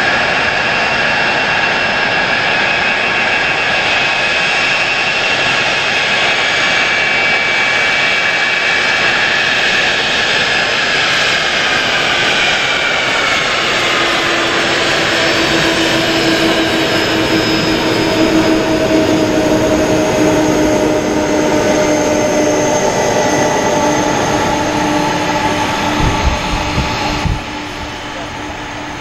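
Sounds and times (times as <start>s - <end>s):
jet engines at takeoff thrust: 0.0s - 29.0s
low thumps: 24.2s - 28.2s.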